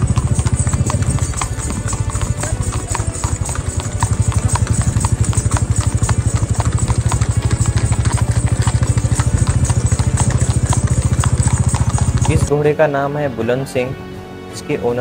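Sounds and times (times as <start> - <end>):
engine running with fast pulse: 3.7 - 12.4.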